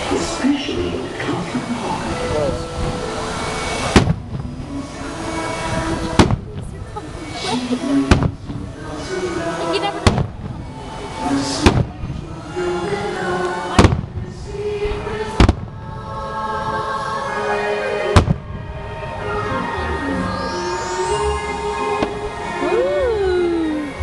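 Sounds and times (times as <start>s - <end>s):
music: 0.0s - 24.0s
fireworks bangs: 3.8s - 4.8s, 5.7s - 6.8s, 8.0s - 8.9s, 9.8s - 10.8s, 11.4s - 12.2s, 13.7s - 16.0s, 18.1s - 18.8s.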